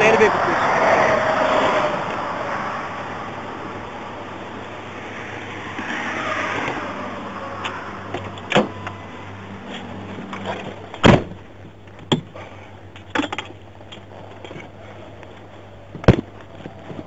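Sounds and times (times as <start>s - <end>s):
passing vehicle road noise: 0.0s - 10.9s
steady low hum: 0.0s - 17.0s.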